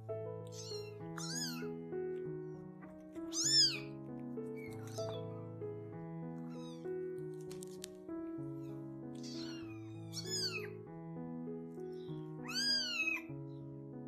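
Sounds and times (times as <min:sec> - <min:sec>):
background music with held notes: 0:00.0 - 0:14.0
kittens mewing: 0:00.5 - 0:01.8, 0:03.2 - 0:03.9, 0:06.4 - 0:06.9, 0:08.6 - 0:10.8, 0:12.0 - 0:13.3.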